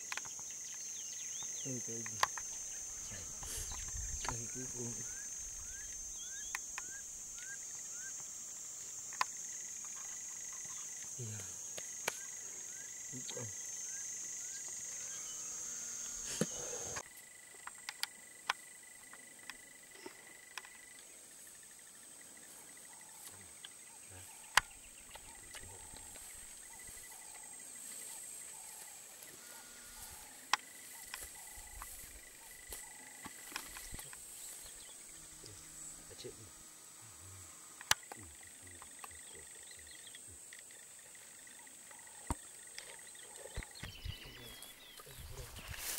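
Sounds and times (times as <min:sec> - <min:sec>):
insects chirring: 0:00.0 - 0:45.9
thin steady whine: 0:01.6 - 0:17.0, 0:22.4 - 0:45.9
sharp clicks: 0:37.8 - 0:38.2.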